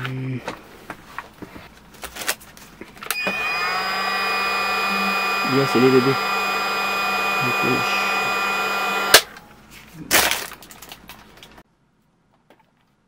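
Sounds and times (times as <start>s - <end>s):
cordless drill running: 3.1s - 9.3s.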